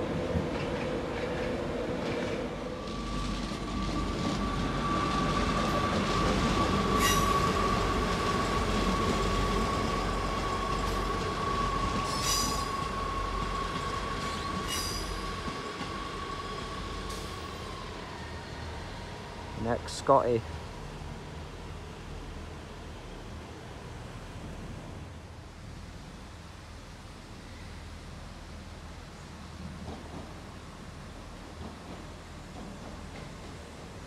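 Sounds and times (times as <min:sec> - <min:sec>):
train low rumble: 0:00.0 - 0:34.0
train wheels squealing: 0:02.8 - 0:19.6
metallic screeches: 0:07.0 - 0:07.5, 0:14.6 - 0:15.2.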